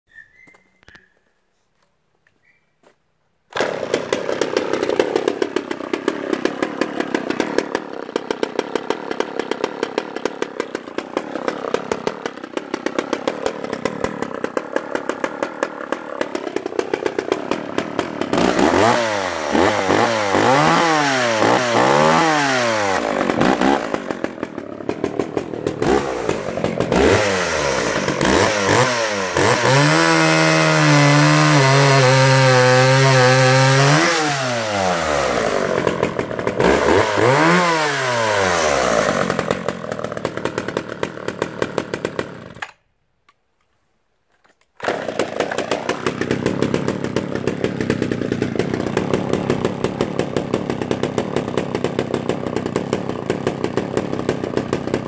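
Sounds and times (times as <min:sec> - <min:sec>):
chainsaw idling and revving: 0:03.5 - 0:42.8, 0:44.8 - 0:55.0
chainsaw cutting log: 0:03.5 - 0:42.9, 0:44.4 - 0:55.0.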